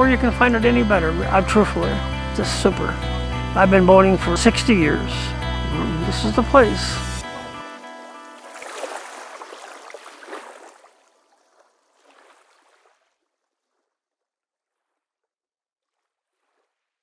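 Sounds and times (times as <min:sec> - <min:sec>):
water rushing and splashing: 0:00.3 - 0:13.2.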